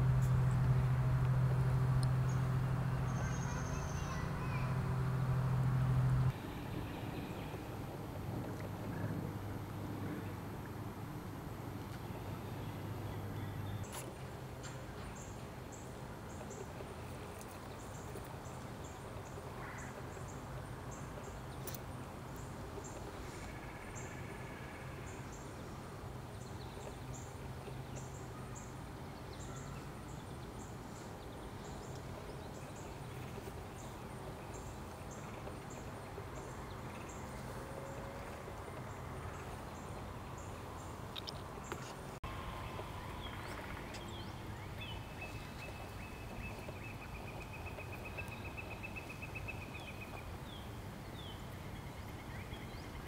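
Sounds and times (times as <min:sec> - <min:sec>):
low background rumble: 0:00.0 - 0:13.9.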